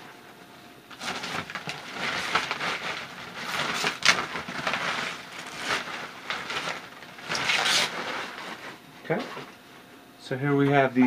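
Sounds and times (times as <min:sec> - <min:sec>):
plastic bag crinkling: 0:00.9 - 0:08.8.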